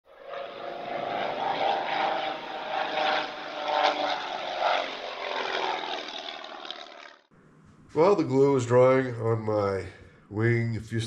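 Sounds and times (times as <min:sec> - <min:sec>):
propeller aircraft engine running: 0:00.1 - 0:07.3.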